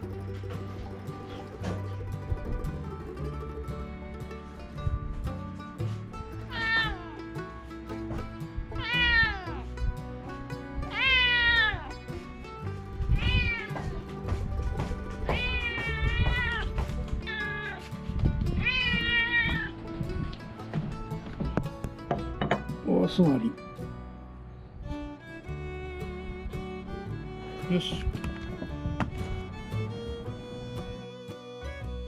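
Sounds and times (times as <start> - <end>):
soft background music: 0.0 - 32.0
cat meowing: 6.5 - 7.1, 8.8 - 9.6, 10.9 - 11.9, 13.2 - 13.9, 15.2 - 17.8, 18.6 - 19.7.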